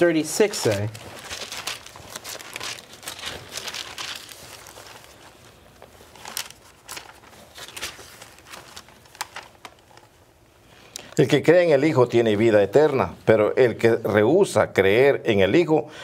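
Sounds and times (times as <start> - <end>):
thin pages turning and rustling: 0.0 - 10.4.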